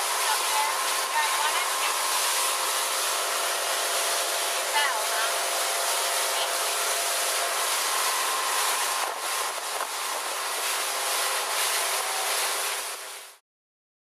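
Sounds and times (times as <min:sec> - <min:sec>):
churning wake water: 0:00.0 - 0:13.4
faint boat engine: 0:00.0 - 0:13.4
rush of wind: 0:07.0 - 0:13.1.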